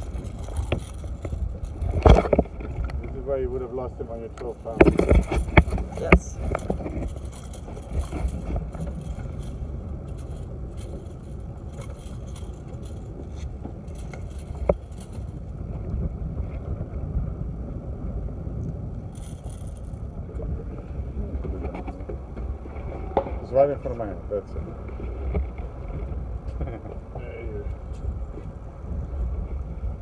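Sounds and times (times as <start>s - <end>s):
water and wind around boat hull: 0.0s - 30.0s.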